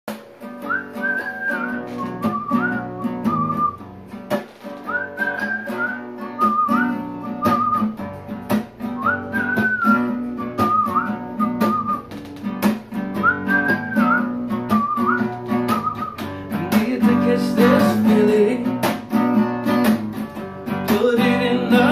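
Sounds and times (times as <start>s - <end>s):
acoustic guitar: 0.1s - 21.9s
whistled melody: 0.4s - 4.0s, 4.8s - 8.2s, 8.8s - 18.2s.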